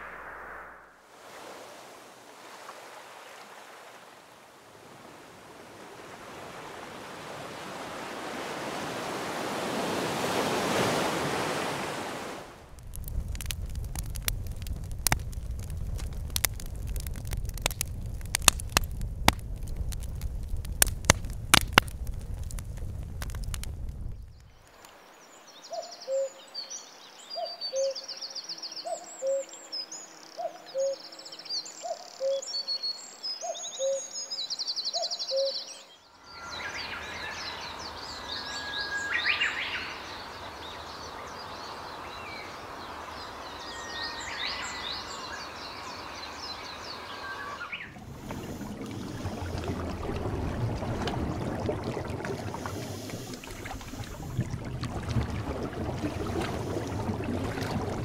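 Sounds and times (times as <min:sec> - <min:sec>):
campfire wood crackling: 0:12.4 - 0:25.0, 0:47.8 - 0:58.0
steady rushing hiss: 0:52.5 - 0:54.4.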